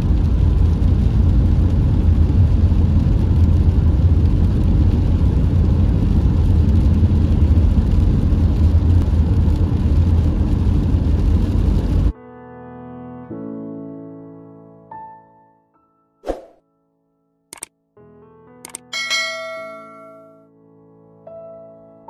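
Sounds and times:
car driving on wet road: 0:00.0 - 0:12.1.

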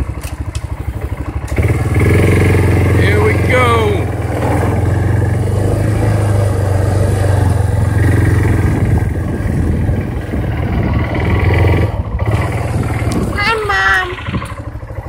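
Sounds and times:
atv engine running: 0:00.0 - 0:15.0.

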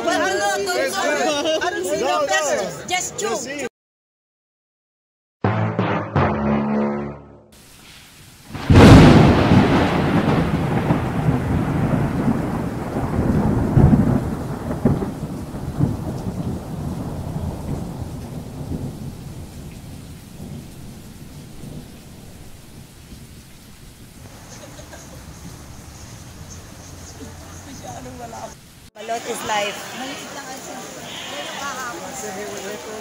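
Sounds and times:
rain: 0:00.0 - 0:03.5, 0:07.6 - 0:33.0
thunder clap and rumbles: 0:08.5 - 0:27.7.

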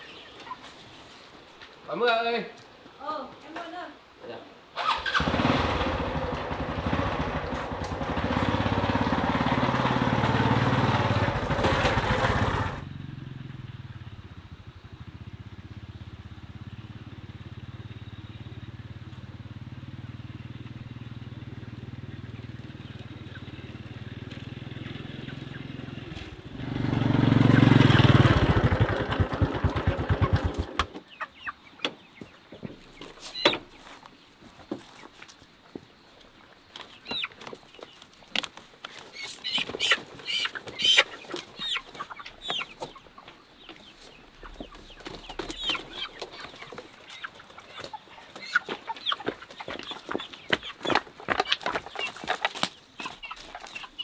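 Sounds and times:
motorcycle engine running: 0:05.2 - 0:30.8.

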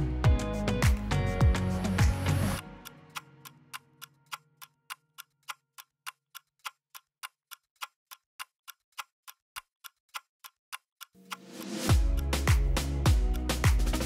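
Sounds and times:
background music: 0:00.0 - 0:04.2, 0:11.2 - 0:14.0
clock-like ticking: 0:00.0 - 0:14.0.

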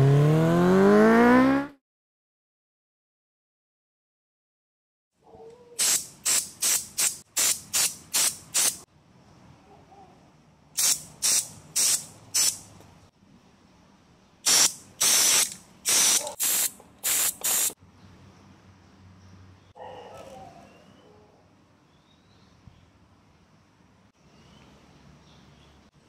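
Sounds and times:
aerosol spray hissing in bursts: 0:05.8 - 0:08.8, 0:10.8 - 0:12.6, 0:14.5 - 0:17.8.

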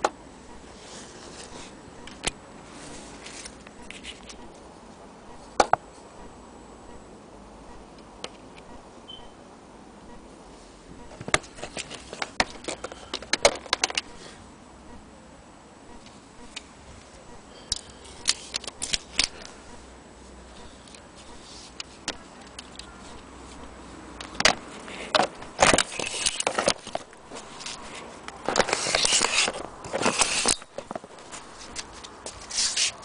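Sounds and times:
rustling and scraping: 0:00.7 - 0:04.5, 0:10.6 - 0:14.4, 0:20.6 - 0:33.0.

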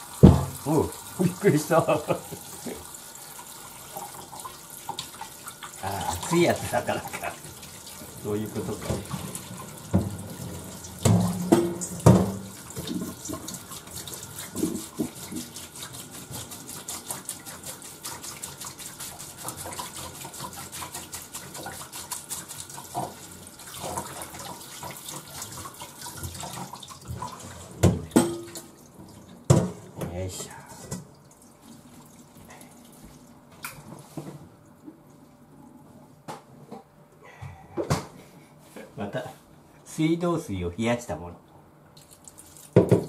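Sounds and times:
tap water running into strainer: 0:00.0 - 0:34.3, 0:42.0 - 0:43.0
strainer knocking on steel bowl: 0:11.0 - 0:12.4.

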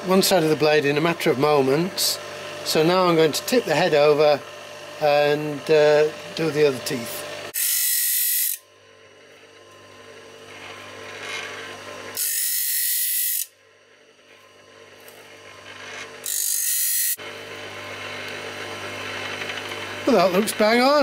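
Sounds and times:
grinder motor humming: 0:00.0 - 0:21.0
grinding bursts on saw teeth: 0:10.4 - 0:13.5.

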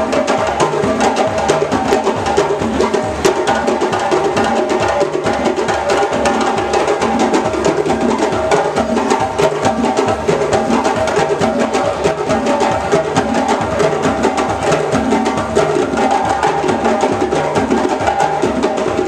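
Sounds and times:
djembe drums playing fast rhythm: 0:00.0 - 0:19.0.

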